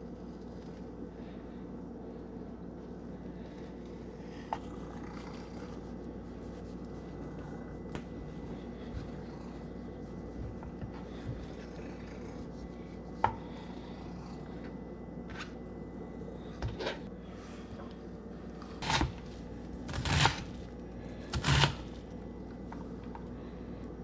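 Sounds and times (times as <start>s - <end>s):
knife strokes and scrapes: 18.7s - 22.1s.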